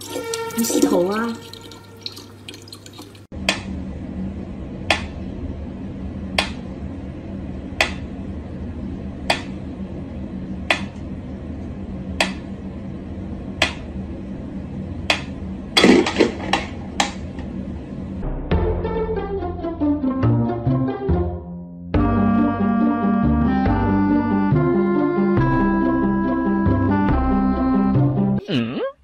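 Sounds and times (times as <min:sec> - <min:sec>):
steady low hum: 0:03.2 - 0:18.7.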